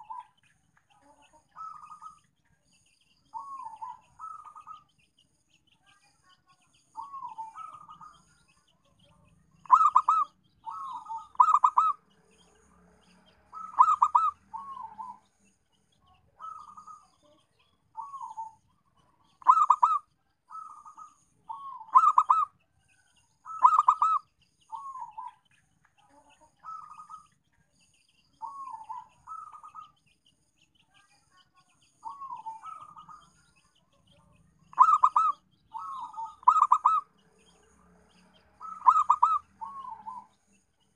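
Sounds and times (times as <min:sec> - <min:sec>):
dove cooing: 0:01.6 - 0:02.2, 0:03.4 - 0:04.8, 0:07.0 - 0:08.2, 0:09.6 - 0:12.0, 0:13.5 - 0:15.2, 0:16.4 - 0:17.1, 0:18.0 - 0:18.6, 0:19.4 - 0:22.5, 0:23.5 - 0:25.3, 0:28.4 - 0:29.9, 0:32.0 - 0:33.3, 0:34.7 - 0:37.1, 0:38.6 - 0:40.3.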